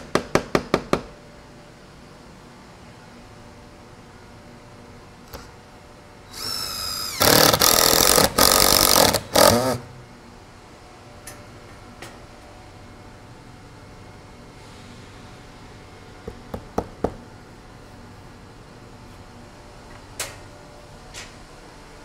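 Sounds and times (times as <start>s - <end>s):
cordless drill driving screw: 6.3s - 9.8s.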